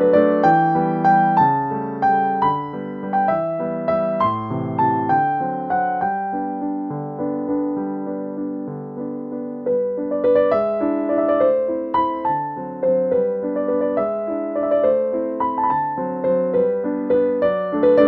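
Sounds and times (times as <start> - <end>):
piano music: 0.0 - 18.0.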